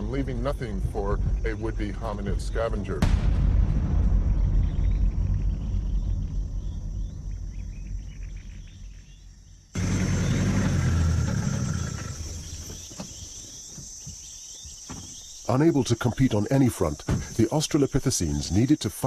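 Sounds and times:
low rumble: 0.0s - 12.8s
high insect chirring: 4.4s - 19.0s.

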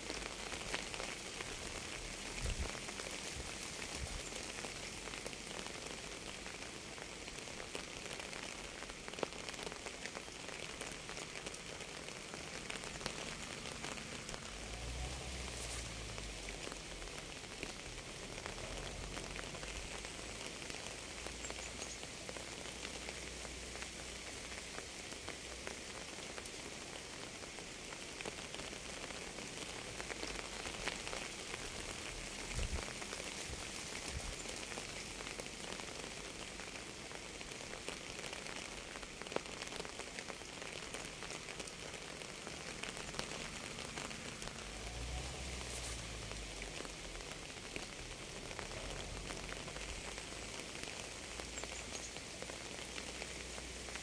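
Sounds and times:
steady rain: 0.0s - 54.0s.

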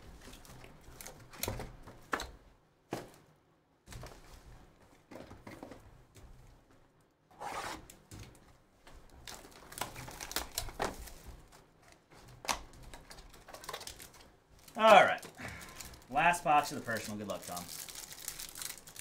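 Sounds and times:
plastic wrapping crinkling: 9.0s - 19.0s.

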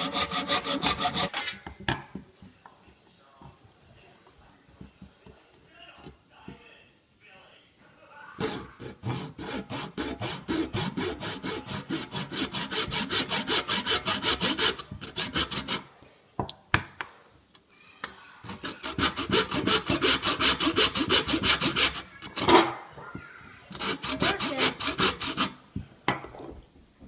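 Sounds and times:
handsaw sawing golf ball: 0.0s - 1.3s, 8.4s - 15.8s, 18.5s - 22.7s, 23.7s - 25.6s.

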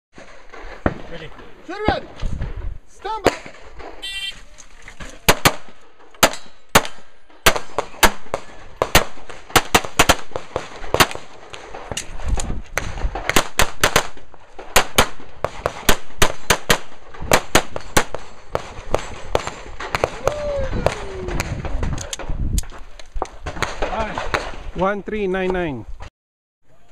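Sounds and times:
pistol shots: 5.3s - 12.0s, 12.8s - 20.2s.

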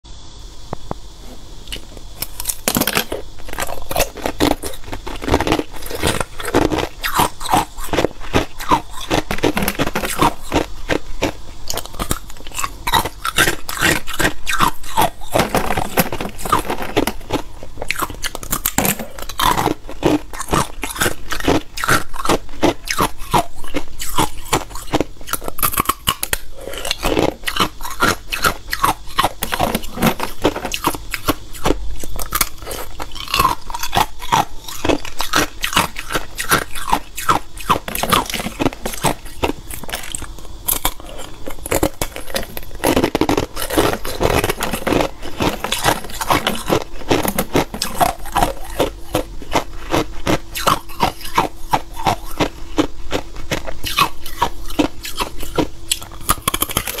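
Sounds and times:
chewing ice cubes crunching: 1.7s - 57.0s.

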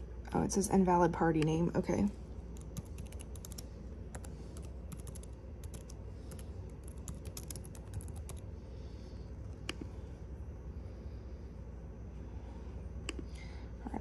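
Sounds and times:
laptop keyboard typing: 2.5s - 8.5s.

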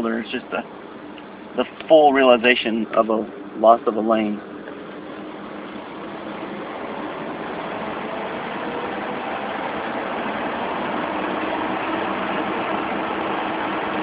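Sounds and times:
car engine running: 0.0s - 14.0s
steady rushing noise: 3.9s - 14.0s.

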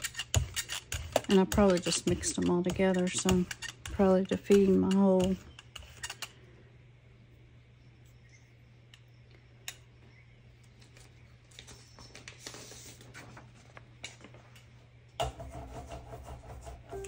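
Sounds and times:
rubber brayer rolling paint: 0.0s - 6.2s.

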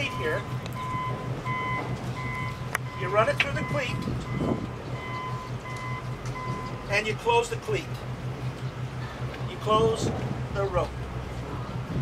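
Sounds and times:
reversing alarm beeping: 0.0s - 6.9s
low engine hum: 0.0s - 12.0s.

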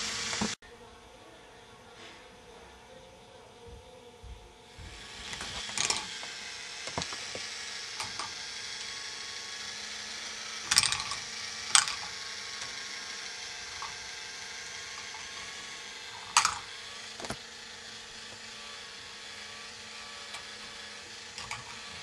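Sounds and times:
plastic balls clacking on tracks: 5.2s - 9.2s, 10.3s - 17.4s, 20.2s - 22.0s
mechanical rattle of lifts: 19.8s - 22.0s.

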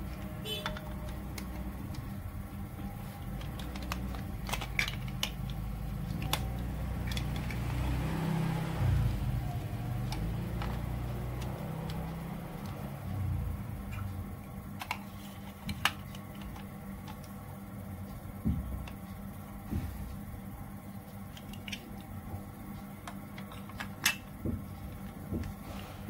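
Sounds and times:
low background hum: 0.0s - 26.0s
plastic pieces clicking and clattering: 3.2s - 7.6s.

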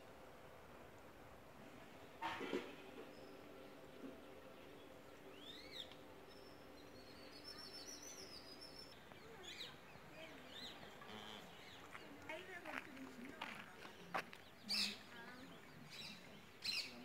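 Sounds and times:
songbird chirps: 2.9s - 17.0s
high thin bird twittering: 14.4s - 17.0s.

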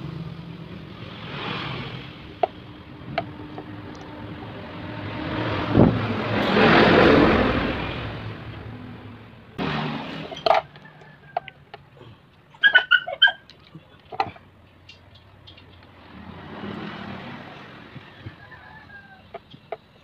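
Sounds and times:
rushing noise: 1.0s - 10.6s.

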